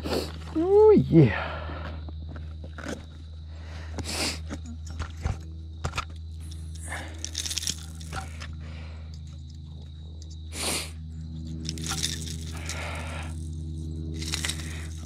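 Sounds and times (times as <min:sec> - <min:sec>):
steady low hum: 0:00.0 - 0:15.0
handling clicks and crackling: 0:04.5 - 0:10.4, 0:11.4 - 0:15.0.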